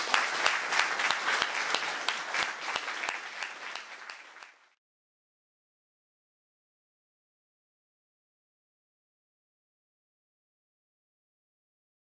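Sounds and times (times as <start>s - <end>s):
audience applauding: 0.0s - 4.8s
sharp nearby claps: 0.0s - 4.8s.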